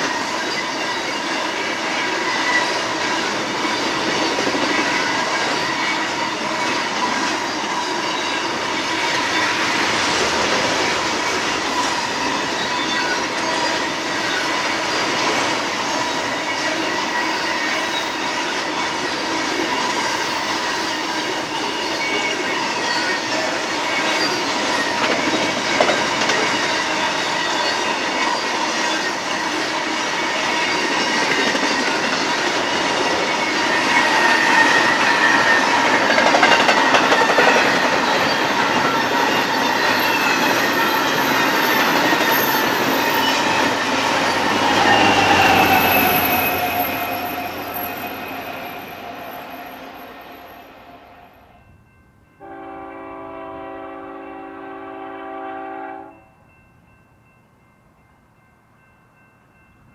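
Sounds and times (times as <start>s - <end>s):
train wheels rumbling on rails: 0.0s - 51.4s.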